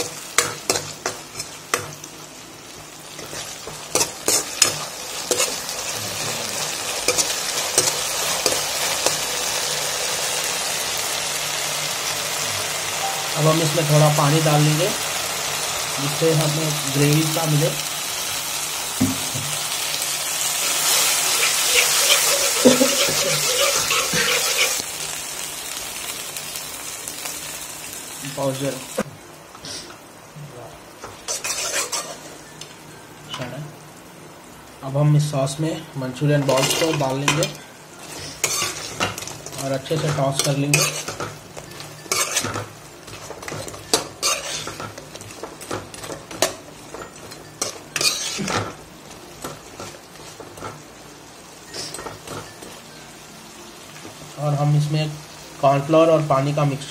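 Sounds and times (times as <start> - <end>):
sauce sizzling in a wok: 0.0 - 56.9
metal spatula scraping pan: 20.8 - 24.8, 31.3 - 32.3, 36.4 - 45.0, 47.0 - 48.6.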